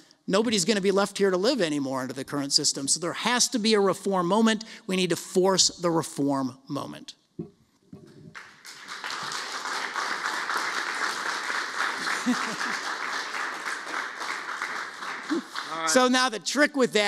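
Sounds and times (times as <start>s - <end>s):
audience applauding: 8.3s - 16.2s.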